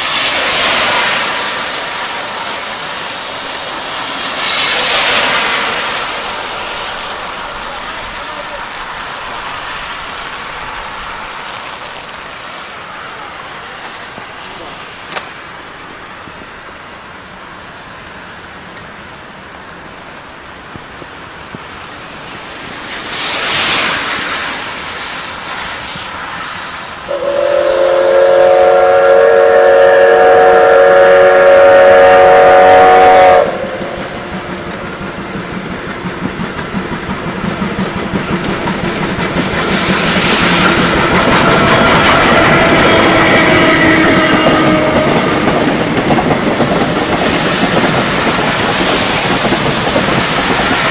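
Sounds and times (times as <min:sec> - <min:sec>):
car hissing past on wet road: 0:00.0 - 0:07.9, 0:22.0 - 0:30.9
heavy rain: 0:00.0 - 0:50.9
steam locomotive whistle: 0:27.1 - 0:34.1, 0:39.8 - 0:45.6
locomotive chuffing: 0:27.1 - 0:50.9.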